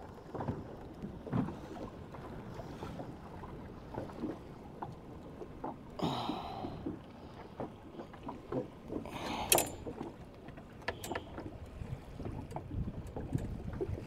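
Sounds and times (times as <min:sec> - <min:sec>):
fishing tackle clatter: 0:09.4 - 0:10.0
handling clicks and knocks: 0:09.5 - 0:10.0.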